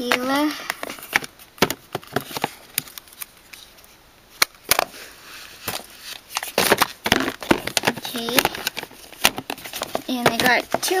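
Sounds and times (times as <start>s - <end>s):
palettes clicking and knocking: 5.7s - 11.0s.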